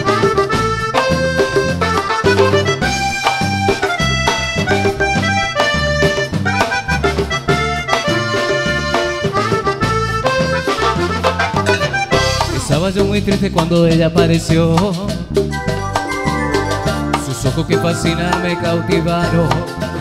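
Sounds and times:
accordion: 0.0 - 20.0
latin dance band playing: 0.0 - 20.0.

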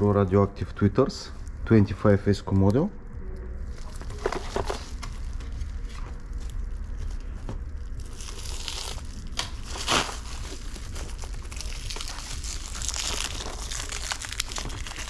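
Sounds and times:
plastic shrink-wrap crinkling: 3.6 - 15.0.

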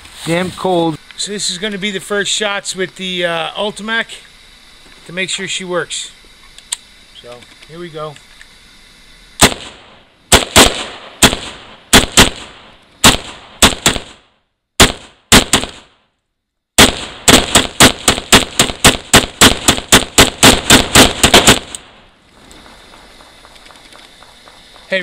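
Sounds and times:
pistol gunshots: 9.4 - 16.0, 16.8 - 22.0.

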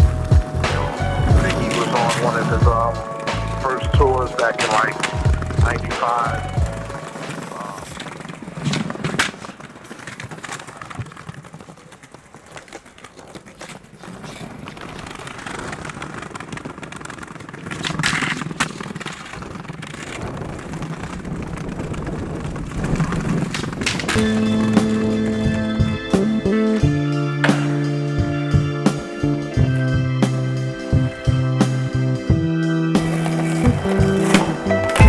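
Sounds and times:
skateboard wheels rolling on concrete: 0.0 - 35.0
skateboard popping and landing clacks: 4.5 - 25.9, 27.4 - 28.0, 33.0 - 35.0.

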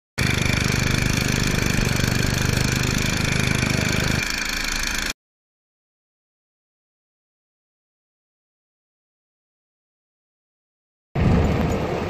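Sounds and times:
small petrol engine running: 0.2 - 5.2.

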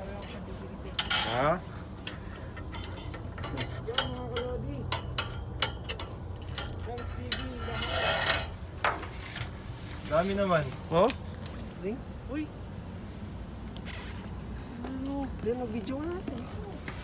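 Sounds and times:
metallic clicks on fan blades: 0.0 - 9.5.

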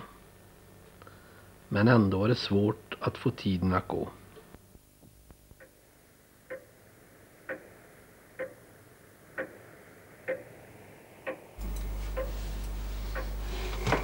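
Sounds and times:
low steady hum: 0.0 - 14.0
clock ticking: 6.4 - 6.8, 7.4 - 7.8, 8.4 - 8.7, 9.3 - 10.6, 11.2 - 13.4.

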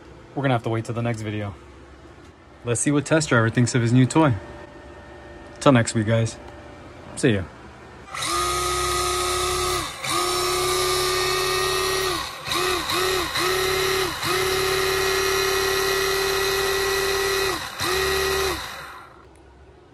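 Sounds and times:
electric motor whining: 8.1 - 19.2.

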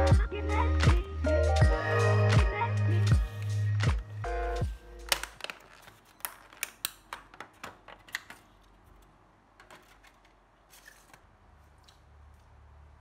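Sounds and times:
plastic lid crackling: 5.0 - 11.3.

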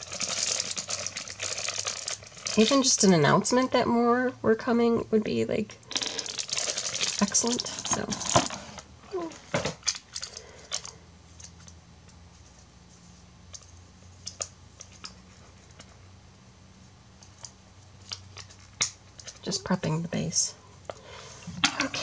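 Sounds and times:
plastic packaging crinkling: 0.0 - 3.1, 6.1 - 11.0
low steady hum: 0.0 - 22.0.

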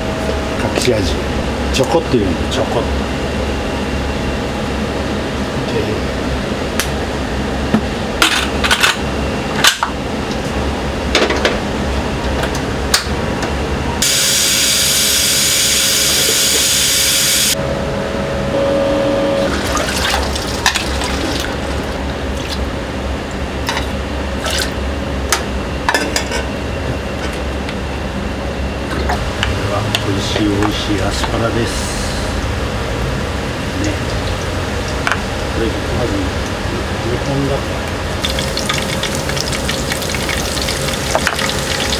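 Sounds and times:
steady background hum: 0.0 - 41.9
tap water running: 19.5 - 22.6, 33.8 - 35.4, 38.2 - 41.9.

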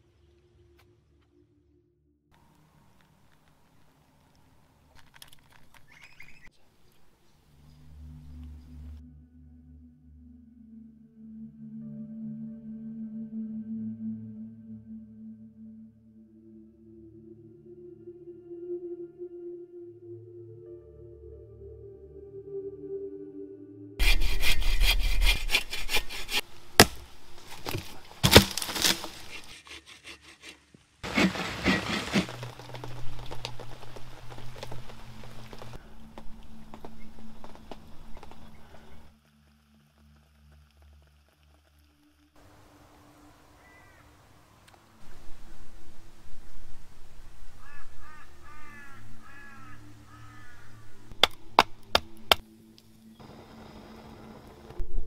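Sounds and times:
bow saw cutting log: 24.0 - 32.8
sharp cracks: 26.7 - 29.5
crow cawing: 43.6 - 44.2, 47.6 - 51.1.

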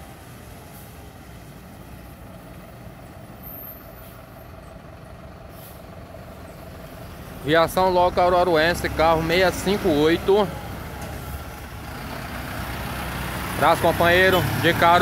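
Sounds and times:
diesel engine rumbling: 0.0 - 15.0
air brake hissing: 5.5 - 6.0.

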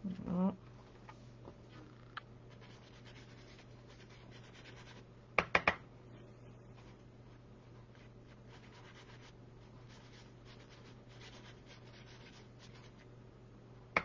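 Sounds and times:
steady low hum: 0.0 - 14.0
paintbrush brushing on card: 2.5 - 5.0, 6.7 - 13.1.

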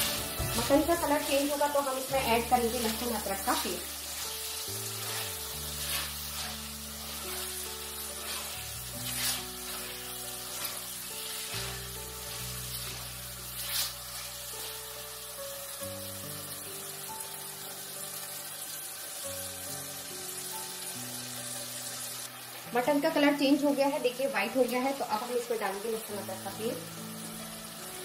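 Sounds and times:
background music with held notes: 0.0 - 28.0
meat sizzling in hot oil: 0.0 - 28.0.

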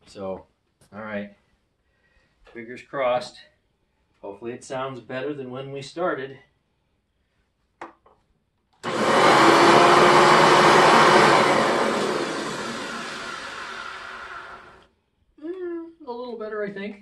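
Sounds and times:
vacuum cleaner motor: 8.8 - 14.8.

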